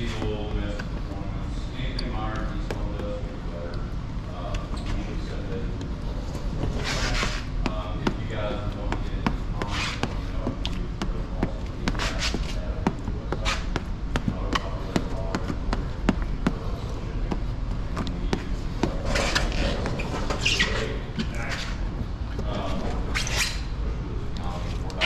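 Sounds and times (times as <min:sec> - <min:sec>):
steady low hum: 0:00.0 - 0:25.0
squeegee scraping on wet film: 0:18.4 - 0:21.9.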